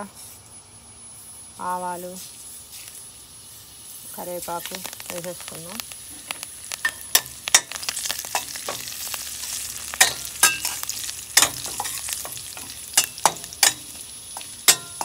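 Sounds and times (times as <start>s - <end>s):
spices sizzling in hot oil: 0.9s - 15.0s
sharp clicks: 4.5s - 7.6s
metal spoon stirring: 6.8s - 15.0s.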